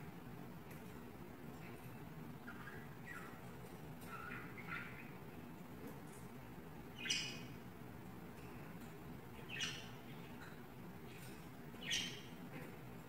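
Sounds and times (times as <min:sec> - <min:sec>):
faint room hum: 0:00.0 - 0:13.0
budgerigars chirping: 0:02.4 - 0:05.3, 0:06.9 - 0:07.6, 0:09.4 - 0:10.2, 0:11.7 - 0:12.5.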